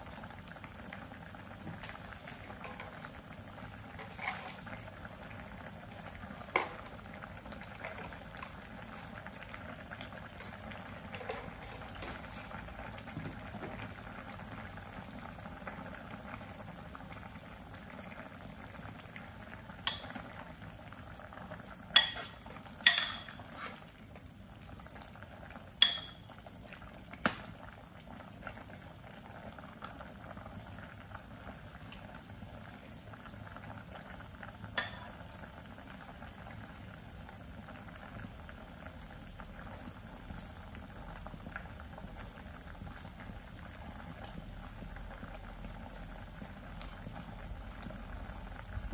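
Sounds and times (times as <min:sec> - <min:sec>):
soup boiling and bubbling: 0:00.0 - 0:48.9
ladle clinking against pot: 0:22.0 - 0:23.5, 0:25.8 - 0:26.2.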